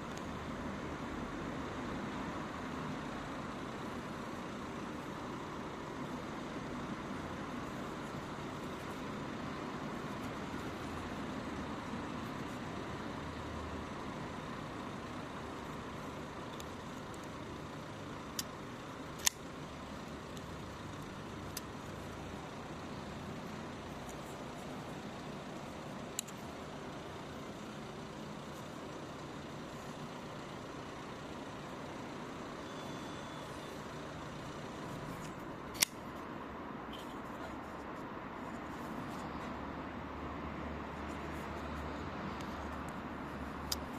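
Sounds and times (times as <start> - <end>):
steady background hum: 0.0 - 43.9
folding knife blade clicking: 19.2 - 19.4, 35.7 - 36.0.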